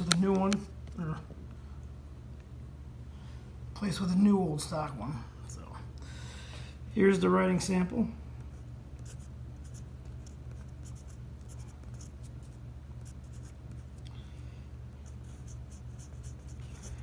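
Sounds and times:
steady low hum: 0.0s - 17.0s
pen nib scratching on paper: 8.5s - 14.0s, 15.0s - 17.0s.

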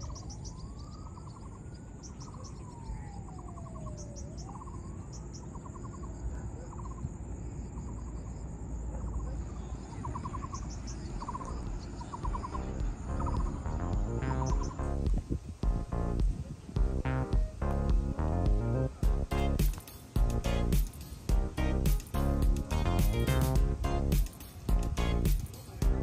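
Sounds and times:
insects chirring: 0.0s - 26.0s
wind rumble on microphone: 9.4s - 19.3s
slow rising and falling tone: 11.3s - 16.2s, 16.8s - 26.0s.

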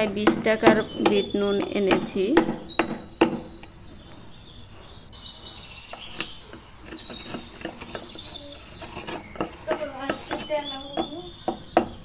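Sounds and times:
birds chirping: 0.0s - 12.0s
pestle pounding salt in mortar: 6.8s - 12.0s.

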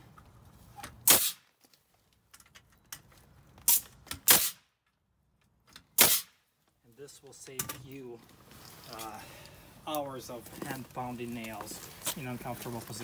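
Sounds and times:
nail gun shots: 1.0s - 1.4s, 3.7s - 4.7s, 6.0s - 6.4s.

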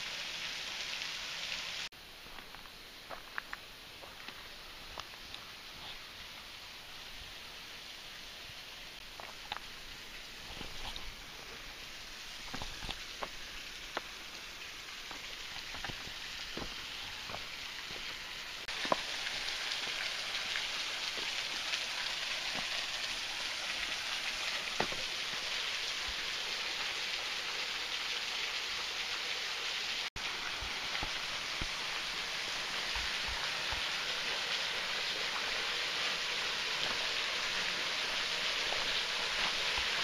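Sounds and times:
waterfall splashing into pool: 0.0s - 1.9s, 12.4s - 40.0s.

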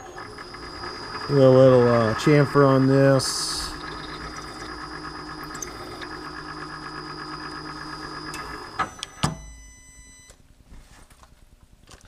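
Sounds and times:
milling machine spindle running: 0.0s - 9.1s.

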